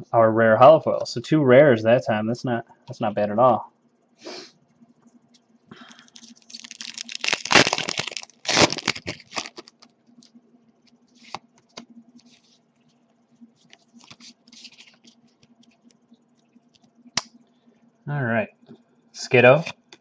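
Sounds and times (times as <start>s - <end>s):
foil wrapper tearing and crinkling: 6.0s - 9.9s
faint rustles and clicks: 9.0s - 17.1s.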